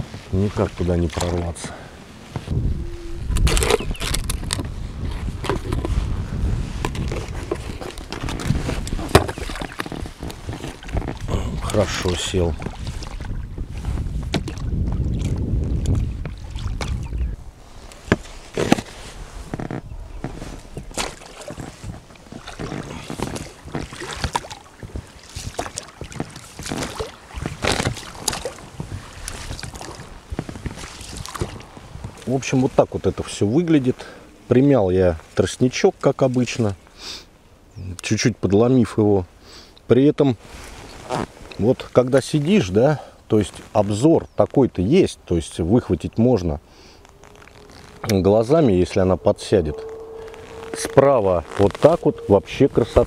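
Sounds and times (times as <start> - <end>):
paddle knocking against hull: 6.9 - 11.3, 14.2 - 17.1, 19.5 - 32.2
boat and gear knocks: 7.5 - 11.2
rustling: 17.6 - 34.5, 40.4 - 42.7, 45.5 - 53.0.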